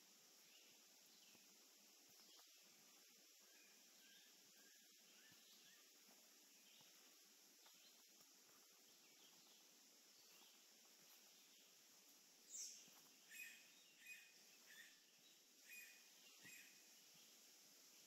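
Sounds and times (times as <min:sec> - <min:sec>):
bird chirping: 0:12.4 - 0:17.4.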